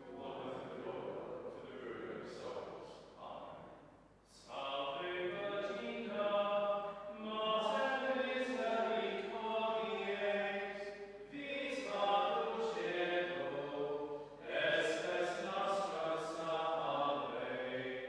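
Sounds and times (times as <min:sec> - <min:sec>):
hymn singing: 0:00.0 - 0:03.6, 0:04.2 - 0:18.0.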